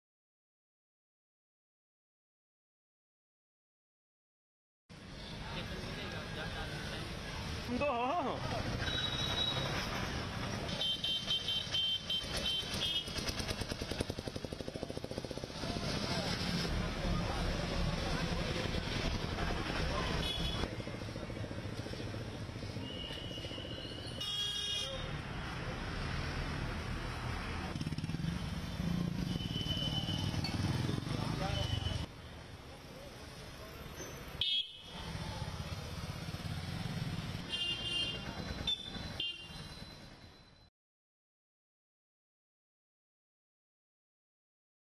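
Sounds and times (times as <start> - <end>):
street noise: 4.9 - 40.7
vehicle engine rumbling: 8.5 - 24.2
motorcycle engine chugging: 11.6 - 15.6.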